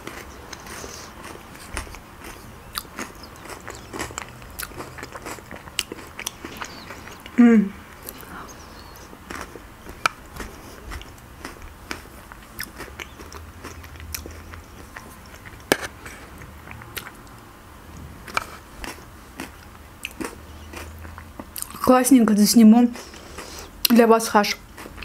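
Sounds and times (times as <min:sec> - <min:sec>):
person chewing: 0:00.0 - 0:17.4, 0:18.2 - 0:21.8, 0:22.9 - 0:23.8, 0:24.6 - 0:25.0.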